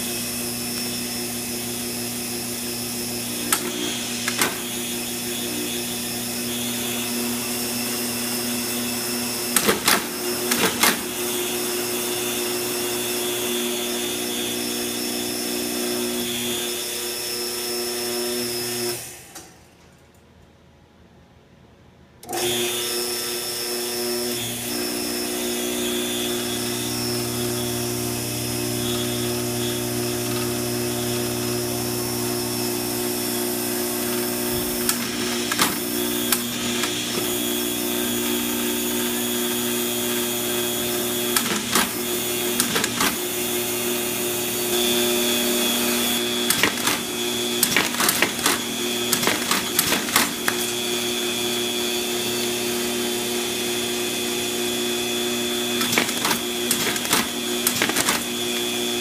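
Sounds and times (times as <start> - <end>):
vacuum pump hum and whine: 22.2 - 59.0
clicks and rattles of machine: 46.4 - 50.7, 55.8 - 58.4.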